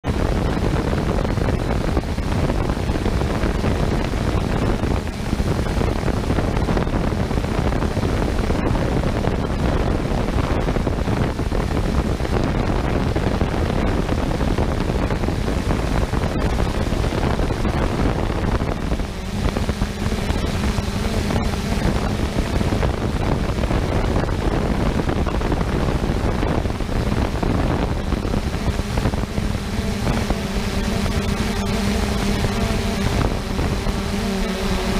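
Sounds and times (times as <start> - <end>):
drone motors humming: 0.0 - 34.9
wind rushing over microphone: 0.0 - 34.9.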